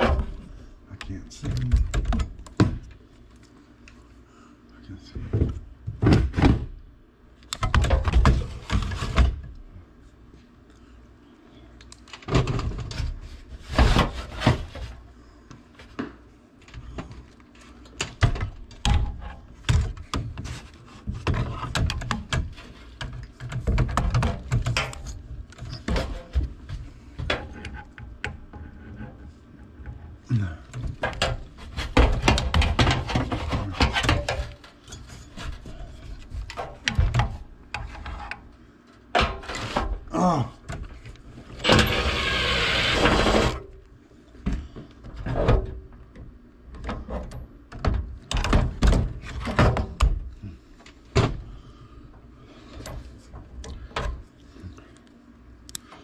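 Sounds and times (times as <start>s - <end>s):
knocks and scrapes inside metal cabinet: 0.0s - 0.6s, 7.6s - 9.5s, 12.2s - 15.0s, 18.0s - 38.4s, 39.1s - 40.1s, 40.7s - 43.7s, 44.6s - 46.0s, 46.8s - 50.4s.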